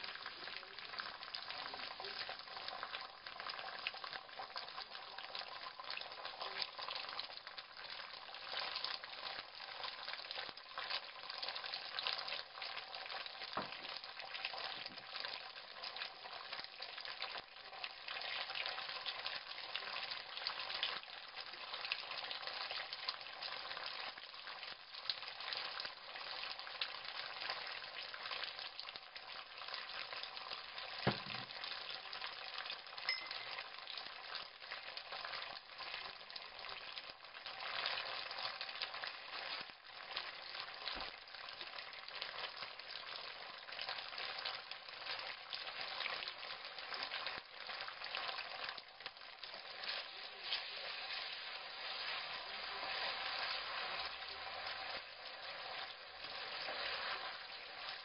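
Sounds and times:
sauce sizzling in a frying pan: 0:00.0 - 0:58.0
knock: 0:13.6 - 0:13.8, 0:31.1 - 0:31.5.

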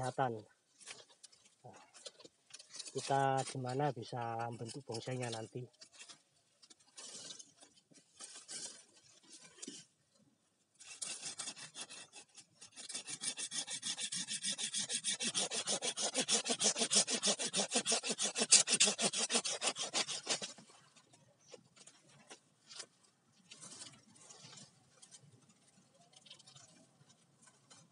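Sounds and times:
hand saw cutting bamboo: 0:02.0 - 0:03.8, 0:10.8 - 0:20.7.

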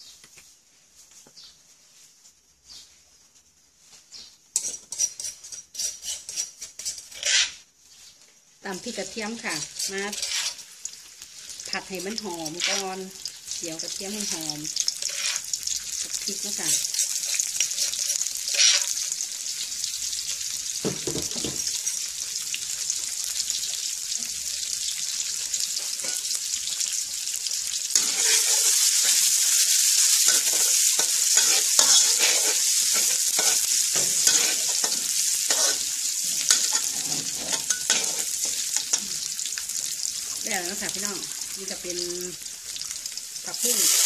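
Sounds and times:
spatula stirring in wok: 0:04.5 - 0:07.6, 0:08.8 - 0:19.4, 0:25.0 - 0:41.0
food sizzling in hot oil: 0:04.5 - 0:44.0.

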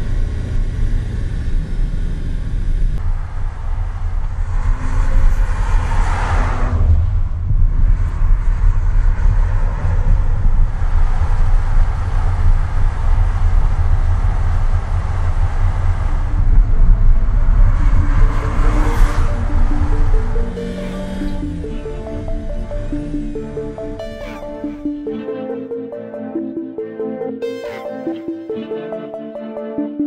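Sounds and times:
car exhaust rumble passing by: 0:00.0 - 0:23.9.

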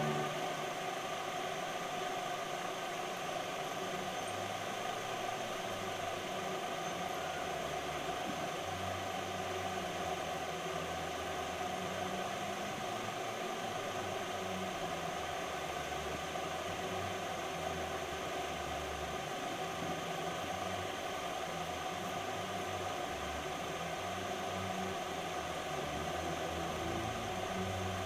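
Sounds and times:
low motor hum: 0:00.0 - 0:00.8
fan whirring: 0:00.0 - 0:28.0.

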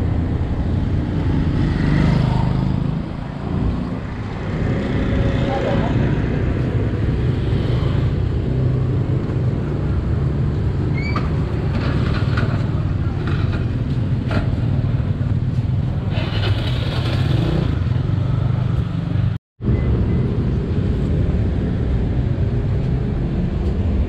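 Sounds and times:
road noise: 0:00.0 - 0:24.0.

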